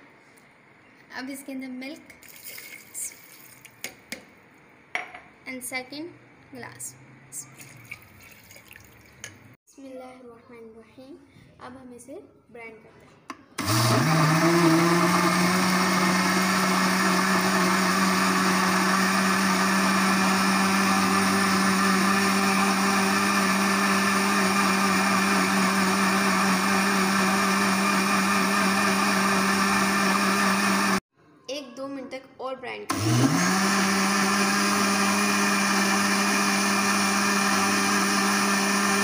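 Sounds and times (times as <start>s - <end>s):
blender motor whining: 13.6s - 31.0s, 32.9s - 39.0s.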